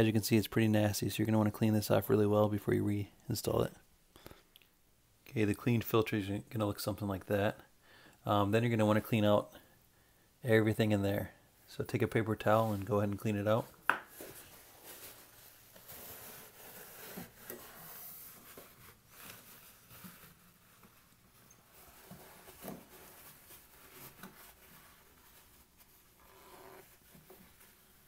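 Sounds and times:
paper towel rubbing plastic: 11.8 - 28.0.

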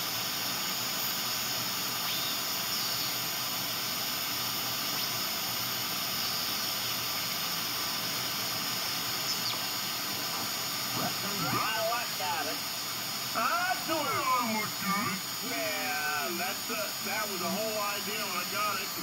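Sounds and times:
radio static hiss: 0.0 - 19.0
faint whistles sweeping in pitch: 2.0 - 3.2.

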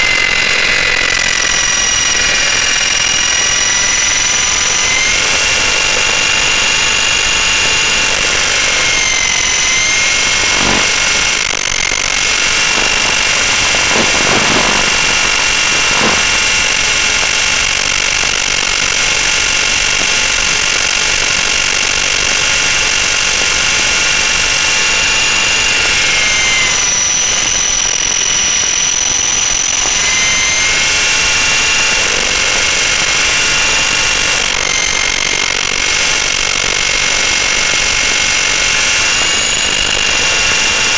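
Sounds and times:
rc helicopter motor whining: 0.0 - 40.9
rushing noise: 8.8 - 17.8.

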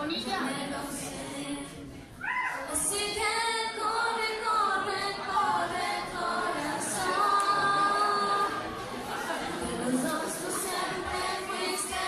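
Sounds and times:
girl singing into microphone: 0.2 - 8.6.

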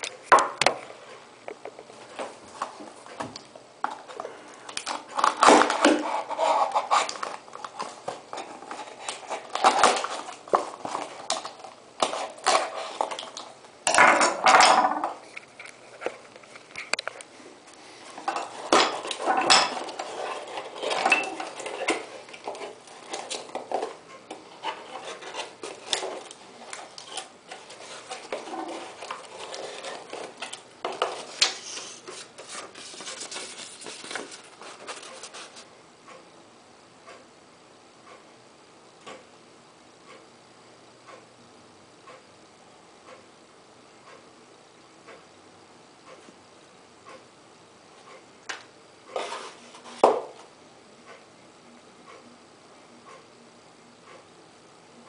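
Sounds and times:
cardboard box scraping and rustling: 27.6 - 30.4, 31.0 - 35.6.

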